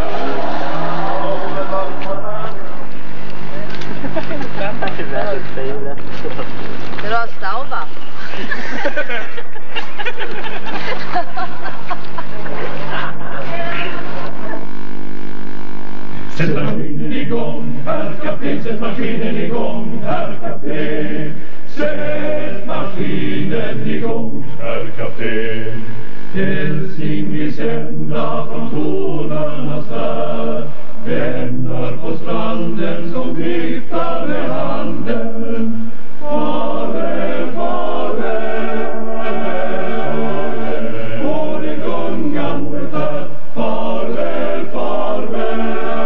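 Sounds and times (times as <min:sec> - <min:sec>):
male choir singing: 0:00.0 - 0:02.8, 0:16.3 - 0:46.0.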